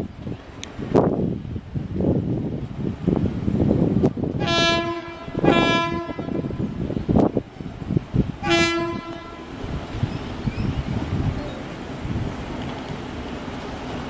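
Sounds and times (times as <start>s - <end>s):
railcar horn blasts: 4.4s - 7.0s, 8.4s - 9.8s.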